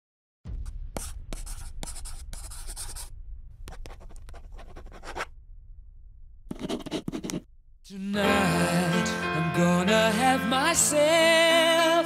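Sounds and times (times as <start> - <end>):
steady low rumble: 0.5 - 8.0
scratchy rustling: 3.7 - 5.3, 6.5 - 7.4.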